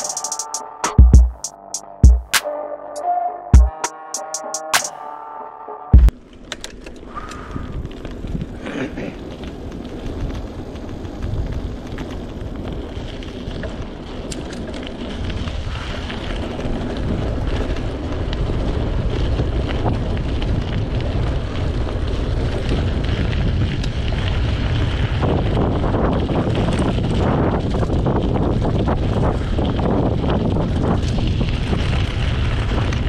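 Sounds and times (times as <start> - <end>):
wind buffeting microphone: 9.2 - 33.0.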